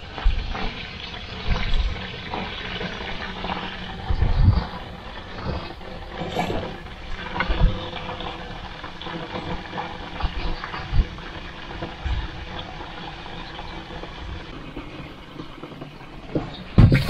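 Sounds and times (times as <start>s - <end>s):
water splashing and sloshing: 0.0s - 17.0s
low thumps: 16.7s - 17.0s.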